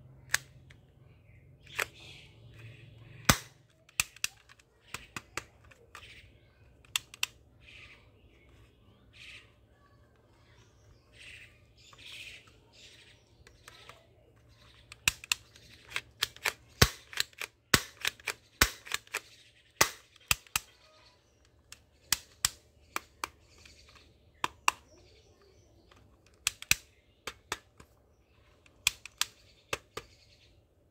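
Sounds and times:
toy pistol plastic clicks: 0:00.2 - 0:00.8, 0:01.6 - 0:07.4, 0:13.4 - 0:25.1, 0:25.8 - 0:30.2.

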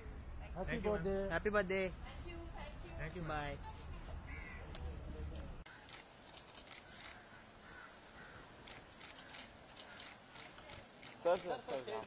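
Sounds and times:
crows cawing: 0:04.3 - 0:04.8, 0:06.8 - 0:10.2.

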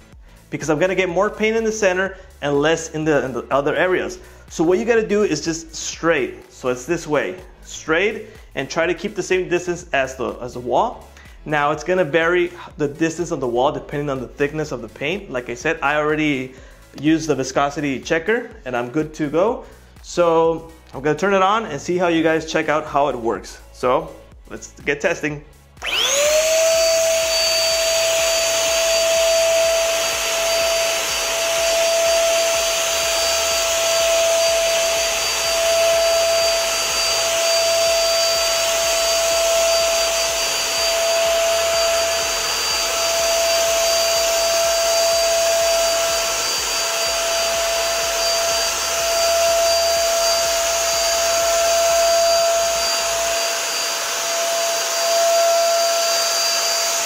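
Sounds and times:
paint sprayer blower whine: 0:25.7 - 0:57.0.

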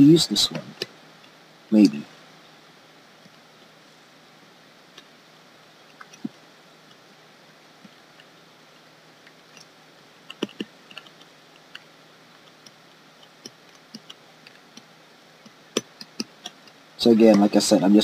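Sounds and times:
stylus tapping on graphics tablet: 0:10.3 - 0:17.5.

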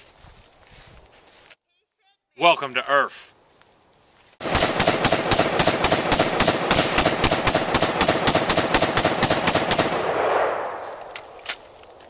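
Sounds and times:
rapid rifle gunfire: 0:04.4 - 0:10.7.

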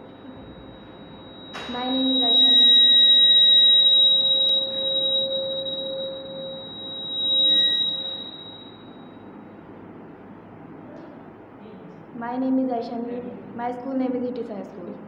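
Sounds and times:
microphone feedback ringing: 0:00.0 - 0:09.3
lower feedback tone: 0:00.0 - 0:09.4.

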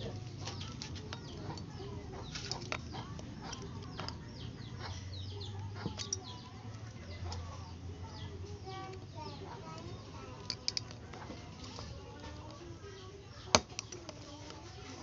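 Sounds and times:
birds chirping: 0:00.0 - 0:15.0
screwdriver clicking and scraping metal: 0:05.8 - 0:06.4, 0:10.4 - 0:11.9.

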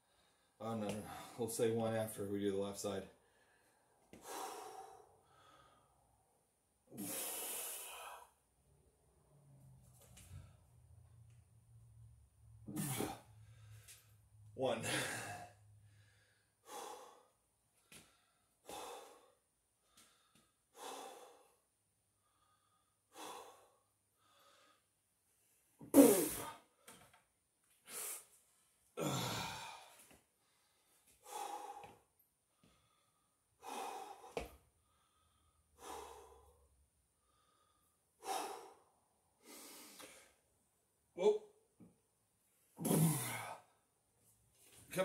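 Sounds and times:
man exhaling forcefully: 0:06.9 - 0:08.3, 0:12.6 - 0:13.8, 0:14.8 - 0:15.6, 0:25.8 - 0:26.6, 0:29.0 - 0:29.9, 0:42.8 - 0:43.6.

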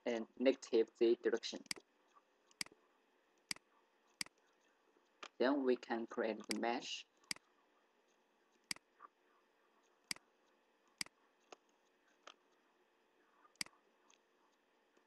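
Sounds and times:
computer mouse clicks: 0:01.6 - 0:02.8, 0:06.4 - 0:07.5, 0:13.4 - 0:15.0.

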